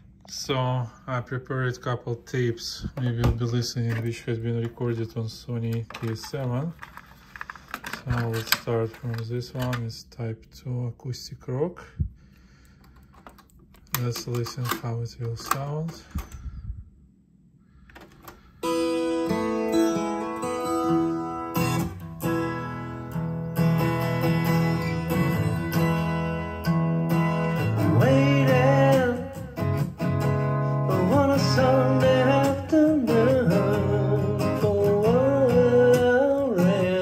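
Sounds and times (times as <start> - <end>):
acoustic rock guitar music: 18.5 - 37.0
person singing: 27.4 - 29.7, 30.7 - 37.0.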